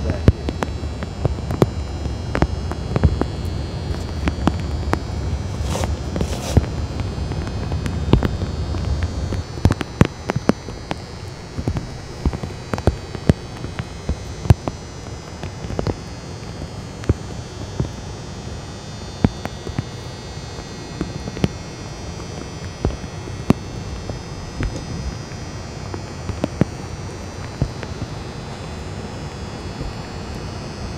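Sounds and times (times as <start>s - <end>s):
sharp clicks and ticks: 0.0s - 18.0s
steady low hum: 0.0s - 30.9s.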